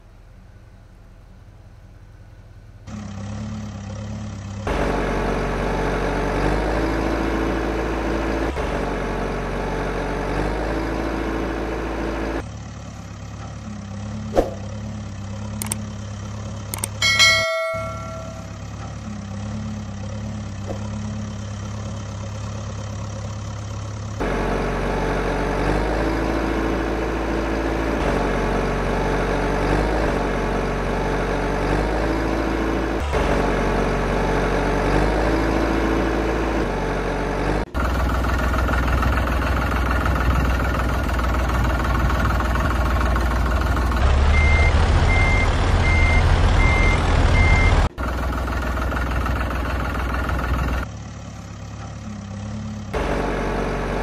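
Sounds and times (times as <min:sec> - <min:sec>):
heavy vehicle engine idling: 0:11.4 - 0:29.0, 0:36.1 - 0:54.0
reversing beeper: 0:44.3 - 0:47.9.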